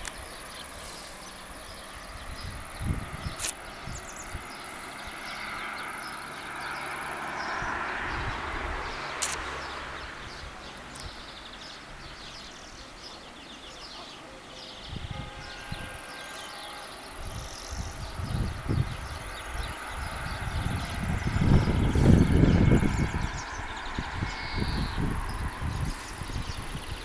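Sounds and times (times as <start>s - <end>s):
wind gusts buffeting microphone: 0.0s - 12.8s, 14.7s - 16.1s, 16.9s - 27.0s
insects chirping: 0.0s - 14.0s
birds chirping: 0.0s - 27.0s
rush of wind: 0.0s - 27.0s
sharp clicks: 9.2s - 9.5s.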